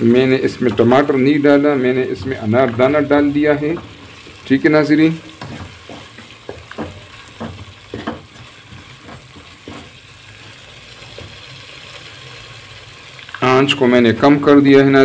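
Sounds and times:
paste sizzling in pot: 0.0 - 15.0
wooden spoon knocking and scraping pot: 0.1 - 11.4.

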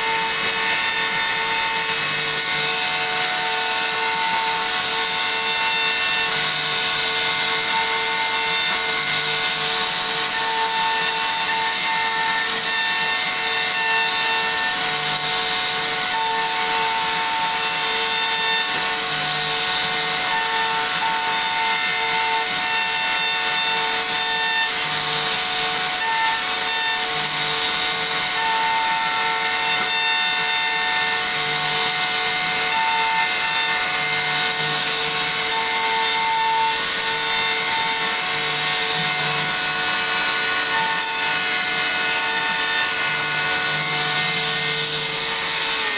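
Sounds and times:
router spindle whine: 0.0 - 45.9.

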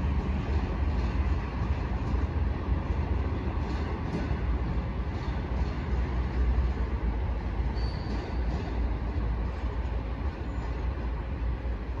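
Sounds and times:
train coaches rumbling on track: 0.0 - 12.0.

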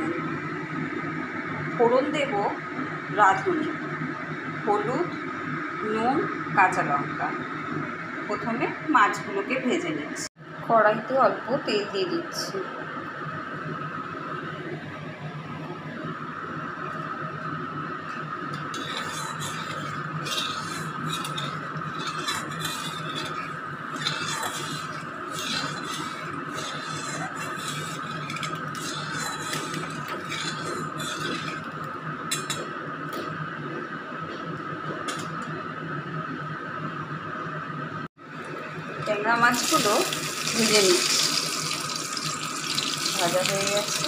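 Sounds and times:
steady kitchen hum: 0.0 - 44.0
metal spatula scraping a pan: 18.7 - 32.6.

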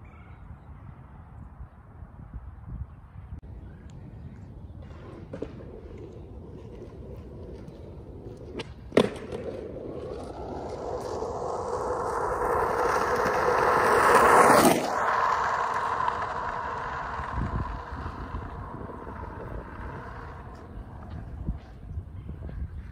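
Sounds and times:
skateboard wheels rolling on asphalt: 4.2 - 22.9
sharp skateboard clack: 4.8 - 22.9.

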